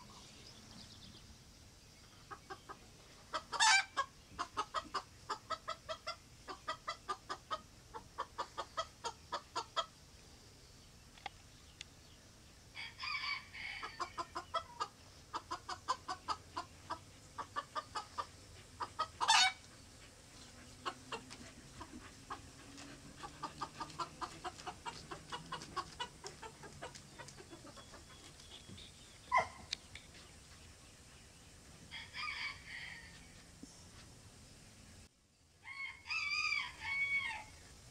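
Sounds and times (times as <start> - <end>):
rooster clucking: 2.2 - 9.9, 12.8 - 19.7, 20.4 - 29.7.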